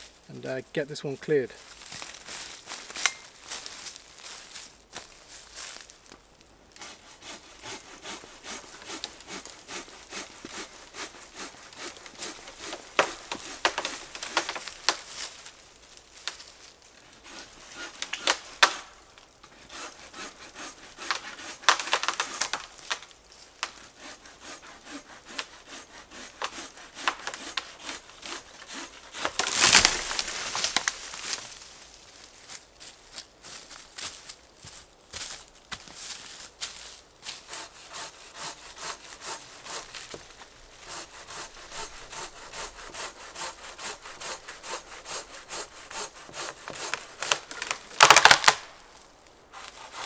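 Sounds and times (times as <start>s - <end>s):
wood cracking: 1.7s - 24.1s, 25.3s - 32.1s, 37.2s - 50.0s
handsaw rasping through wood: 6.8s - 14.4s, 19.6s - 22.4s, 23.9s - 29.4s, 37.4s - 40.2s, 40.8s - 47.6s, 49.6s - 50.0s.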